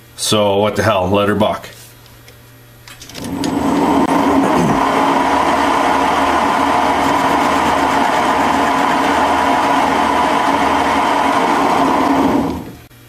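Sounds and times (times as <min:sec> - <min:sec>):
metal lathe cutting steel: 0:03.3 - 0:12.8.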